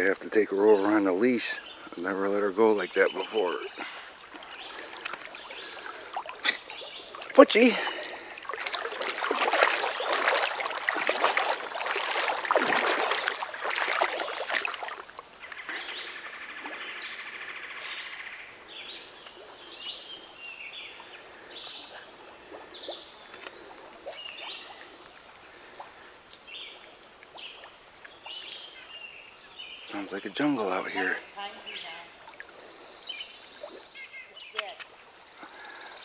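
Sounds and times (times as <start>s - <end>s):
faint stream: 0.0s - 36.0s
birds chirping and calling: 0.3s - 8.3s, 15.4s - 26.7s, 27.5s - 34.8s
water splashing loudly: 4.2s - 15.3s.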